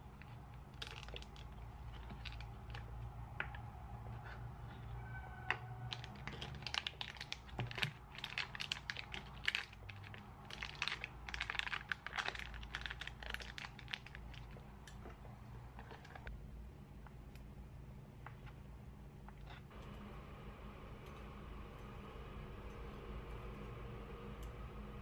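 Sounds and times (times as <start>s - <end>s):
foil wrapper crinkling: 0.7s - 2.9s, 5.8s - 14.6s.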